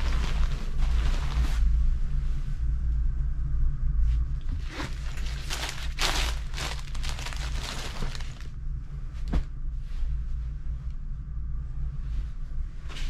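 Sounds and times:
cloth rustling: 0.0 - 2.4, 4.6 - 8.5
steady low hum: 0.0 - 13.0.

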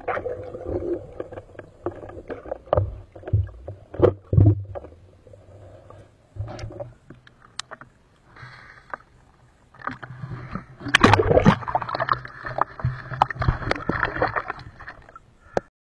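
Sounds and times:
muffled underwater clicks: 6.4 - 9.1
water splashing over microphone: 9.9 - 15.2.

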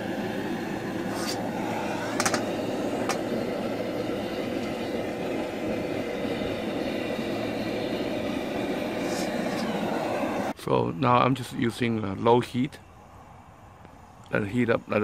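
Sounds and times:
gas burner flame rushing: 0.0 - 10.6.

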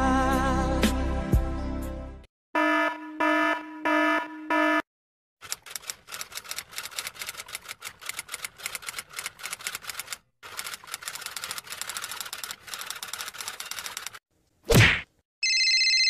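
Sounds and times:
typewriter keys clacking: 5.4 - 14.2.

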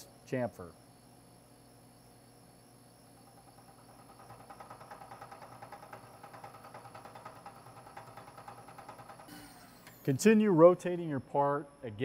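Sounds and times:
milling machine spindle running: 3.2 - 10.2
rapid rhythmic cutter ticking: 3.3 - 9.3.

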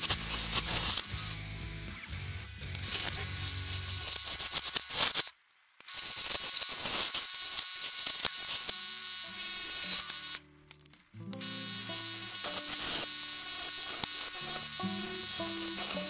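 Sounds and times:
gouge scraping wood on lathe: 0.0 - 1.1, 12.0 - 16.0.

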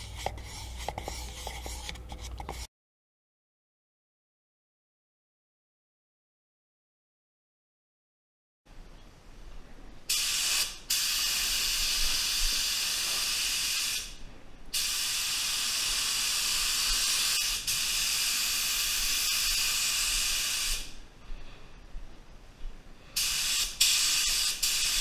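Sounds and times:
spray gun hissing: 10.1 - 14.1, 14.8 - 21.0, 23.2 - 25.0.

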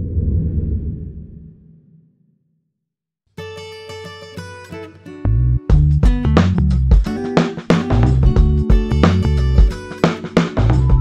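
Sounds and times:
band music with drum beat: 5.7 - 11.0.

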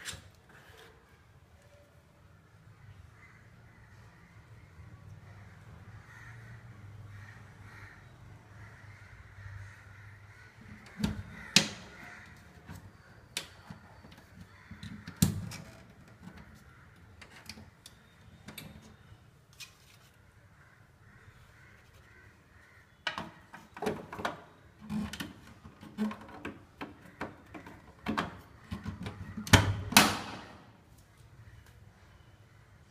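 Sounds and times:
plastic clicks and knocks: 23.0 - 30.4.

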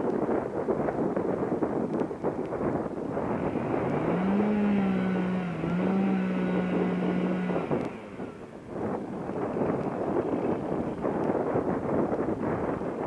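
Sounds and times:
wind buffeting microphone: 0.0 - 13.0
chainsaw cutting wood: 3.1 - 11.3.

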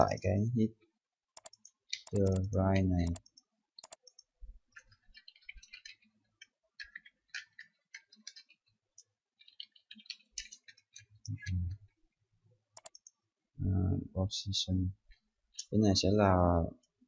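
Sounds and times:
keyboard key clicks: 12.8 - 13.1.

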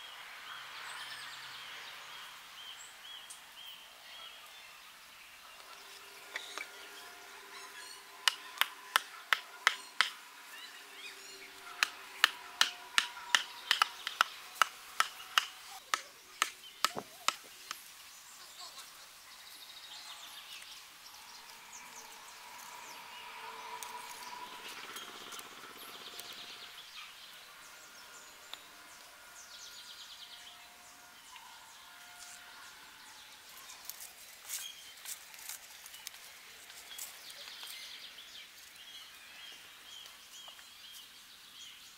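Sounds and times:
birds calling: 5.3 - 35.1.

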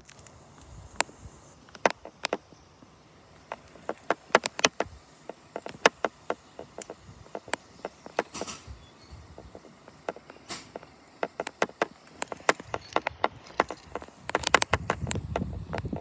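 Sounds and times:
faint outdoor background: 0.0 - 16.0
sharp clicks and taps: 1.7 - 2.4, 3.5 - 8.7, 9.3 - 16.0.

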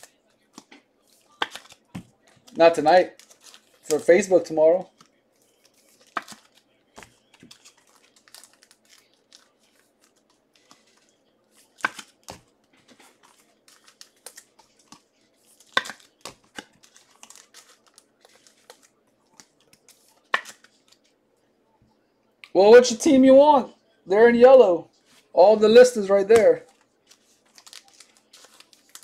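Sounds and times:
wrappers crinkling and tearing: 1.0 - 4.1, 4.9 - 21.1, 26.6 - 29.0.

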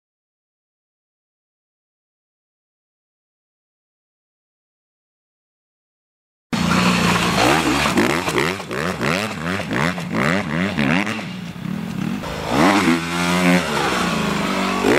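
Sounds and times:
dirt bike engine revving: 6.6 - 14.9.

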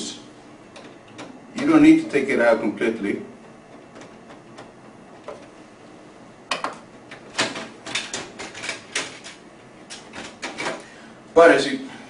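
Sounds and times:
plastic parts clicking and rattling: 7.4 - 10.8.

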